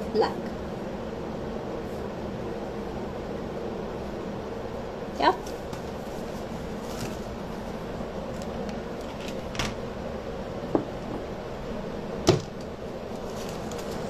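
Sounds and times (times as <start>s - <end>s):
steady background hum: 0.0s - 14.0s
craft supplies knocking on table: 12.3s - 12.5s.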